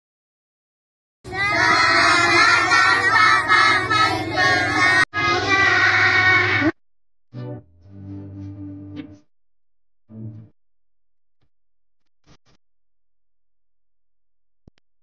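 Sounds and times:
children calling out in unison: 0:01.3 - 0:06.8.

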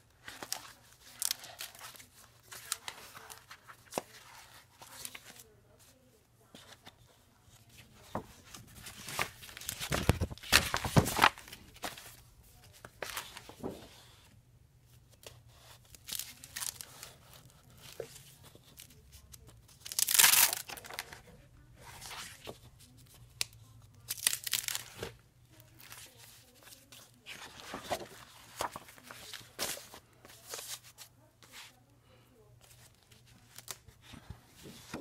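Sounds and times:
plastic sheets crinkling: 0:00.2 - 0:05.9, 0:07.5 - 0:13.9, 0:15.9 - 0:23.2, 0:24.1 - 0:31.7.

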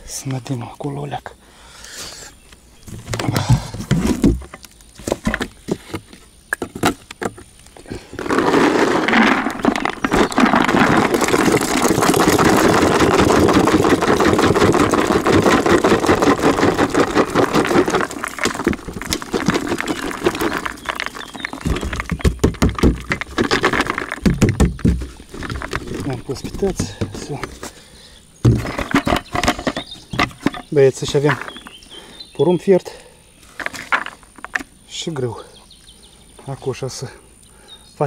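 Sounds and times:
groundbait rustling rattle: 0:08.2 - 0:27.7
scattered knocks: 0:09.6 - 0:27.6, 0:28.4 - 0:30.7.

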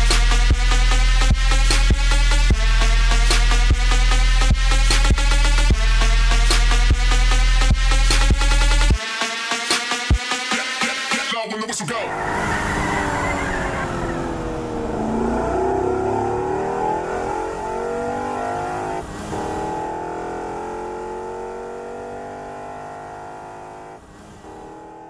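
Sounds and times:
car engine revving: 0:12.0 - 0:25.0.

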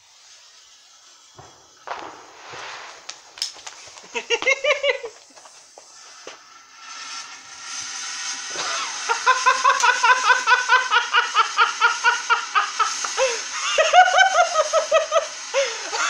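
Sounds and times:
firework whistling chirps: 0:00.0 - 0:16.0.

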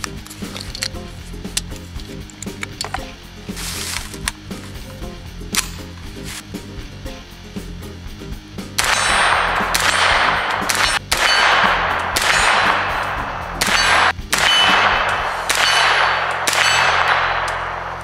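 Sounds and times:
rifle shots with metallic ring: 0:08.8 - 0:18.0.

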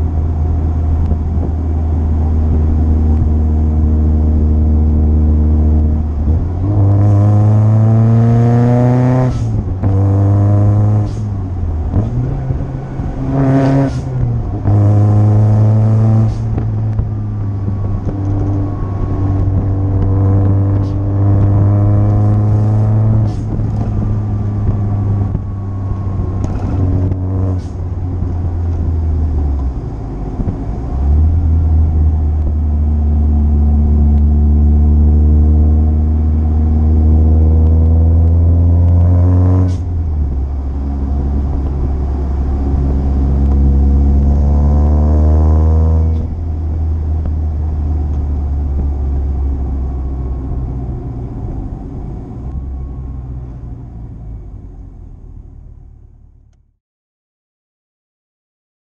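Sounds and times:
supercharged car engine accelerating: 0:00.0 - 0:53.3.

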